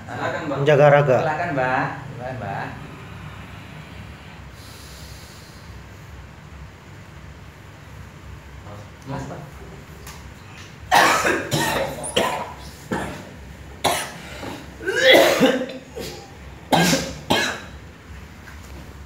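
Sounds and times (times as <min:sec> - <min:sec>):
man coughing: 0:10.9 - 0:17.8.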